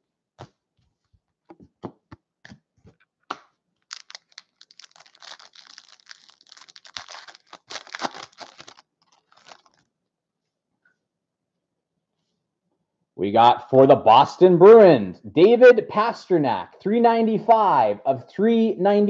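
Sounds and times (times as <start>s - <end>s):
foil wrapper crinkling and tearing: 3.8s - 9.9s.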